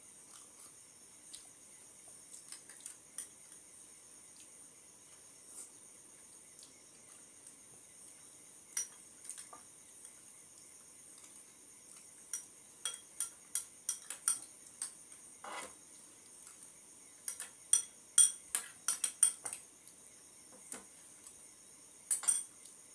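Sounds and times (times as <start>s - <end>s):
metal spoons clinking on glass bowls: 12.3s - 14.4s, 17.3s - 19.6s, 22.1s - 22.5s.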